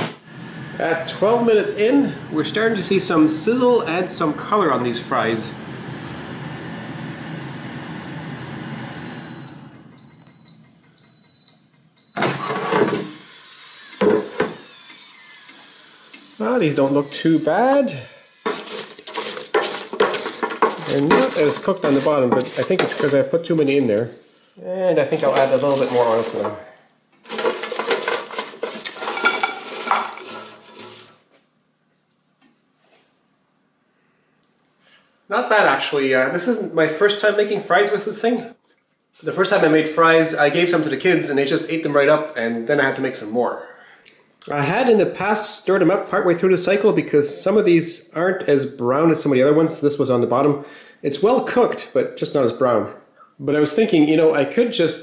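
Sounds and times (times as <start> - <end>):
air fryer fan whirring: 4.0 - 24.1
short high beeps: 9.0 - 12.6
fries clattering onto a plate: 18.5 - 24.1, 27.2 - 31.1.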